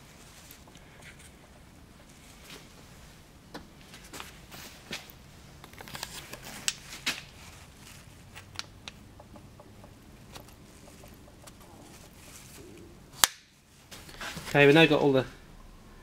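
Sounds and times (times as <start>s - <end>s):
small metal clicks and knocks: 8.3s - 12.0s.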